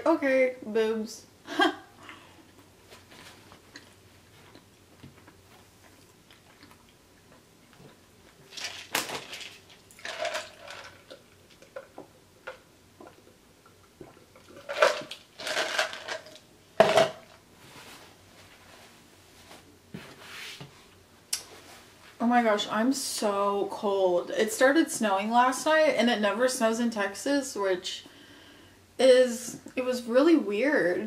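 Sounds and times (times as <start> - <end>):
chewing: 2.5 - 8.5
plastic cup clattering: 8.5 - 12.6, 14.4 - 17.4.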